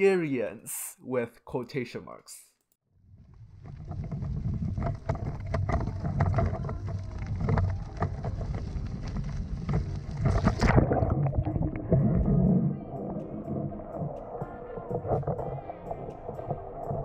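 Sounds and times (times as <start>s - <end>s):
cart wheels rolling over gravel: 3.2s - 10.6s.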